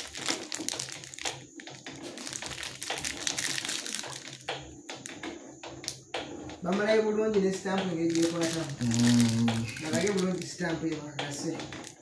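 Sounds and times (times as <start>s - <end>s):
plastic film crinkling: 0.0s - 4.5s, 8.0s - 10.7s.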